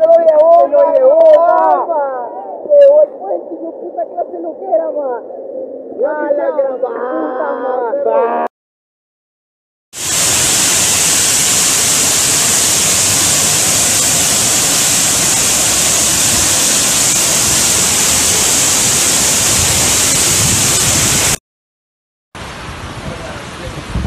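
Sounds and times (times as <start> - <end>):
floodwater rushing: 10.0 - 21.4.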